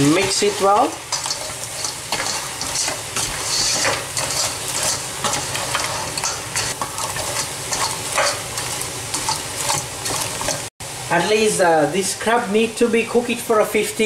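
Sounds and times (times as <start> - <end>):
spatula scraping shells in pan: 0.0 - 10.7
oil sizzling: 0.0 - 13.6.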